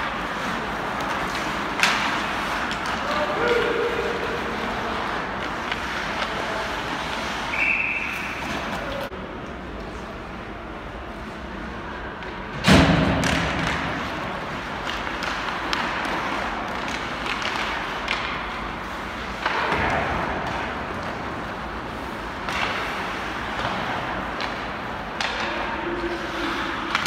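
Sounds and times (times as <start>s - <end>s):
hockey sticks and puck clacking: 0.0s - 10.2s, 11.2s - 27.0s
rink background noise: 0.0s - 27.0s
slam against the boards: 12.6s - 14.0s.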